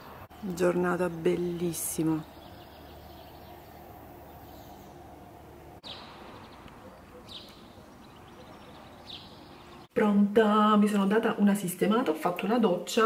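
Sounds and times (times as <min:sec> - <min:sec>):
steady background hiss: 0:00.0 - 0:09.9.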